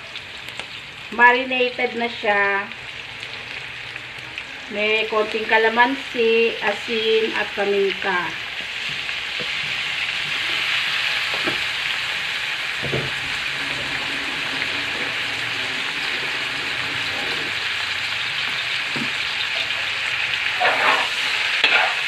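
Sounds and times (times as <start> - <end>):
meat sizzling in a wok: 0.0 - 22.0
metal spatula scraping a pan: 13.2 - 17.8, 18.4 - 22.0.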